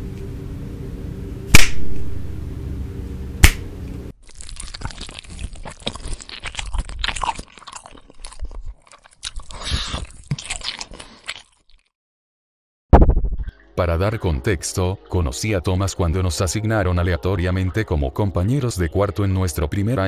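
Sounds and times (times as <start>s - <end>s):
finger snaps: 3.4s - 3.6s
crunchy chewing sound effect: 4.2s - 11.9s.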